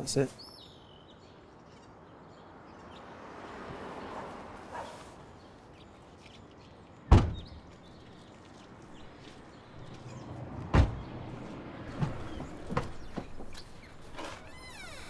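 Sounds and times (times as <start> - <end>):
car door shutting: 7.1 - 7.6, 10.6 - 11.2.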